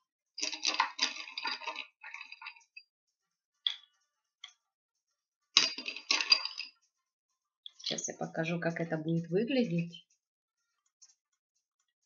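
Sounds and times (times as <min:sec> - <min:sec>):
stones clinking into pot: 0:00.4 - 0:02.8, 0:05.6 - 0:06.8.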